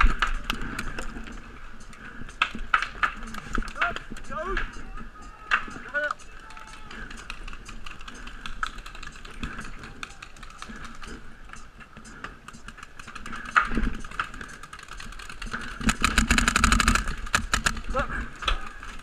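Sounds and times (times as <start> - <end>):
paintball markers firing: 12.1 - 18.6.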